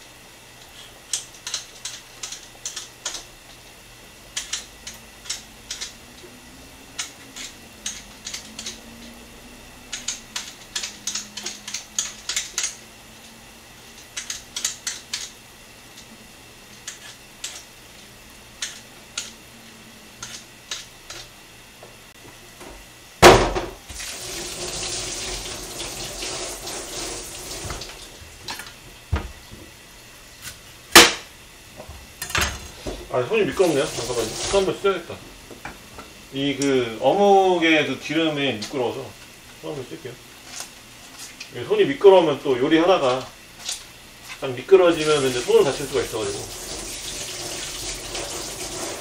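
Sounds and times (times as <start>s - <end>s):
kitchen tap running: 23.5s - 29.2s, 33.1s - 35.7s, 44.7s - 49.0s.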